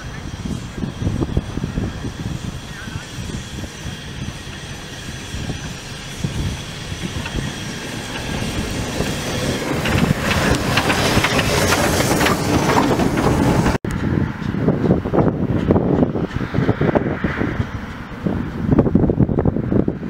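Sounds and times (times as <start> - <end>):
hissing steam: 0.0 - 13.8
steam locomotive passing: 0.0 - 20.0
wheels clattering on rails: 0.0 - 20.0.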